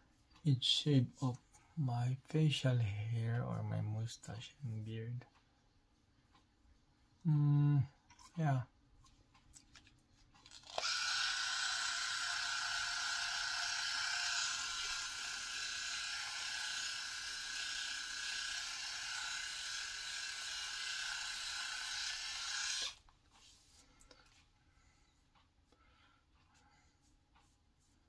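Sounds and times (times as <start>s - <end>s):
electric shaver buzzing: 10.5s - 23.0s.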